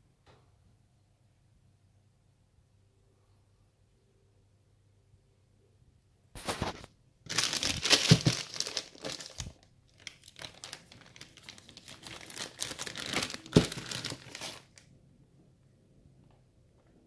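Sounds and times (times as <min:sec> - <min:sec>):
plastic bag crinkling: 0:06.4 - 0:14.8.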